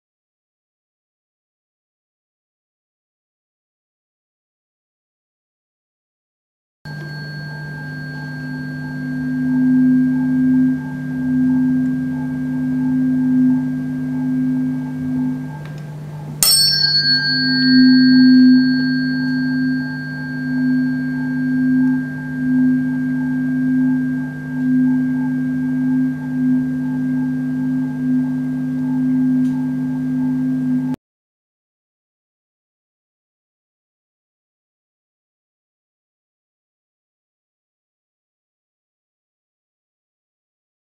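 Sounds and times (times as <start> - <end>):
steady low hum: 6.9 - 31.0
tuning fork ringing: 6.9 - 31.0
tuning fork struck with click: 6.9 - 31.0.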